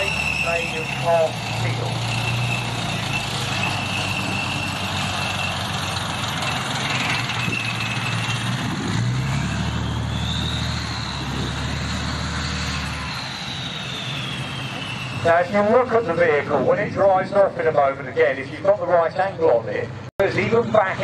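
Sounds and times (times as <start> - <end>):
tank diesel engine running: 0.0 - 21.0
high whine: 12.7 - 17.0.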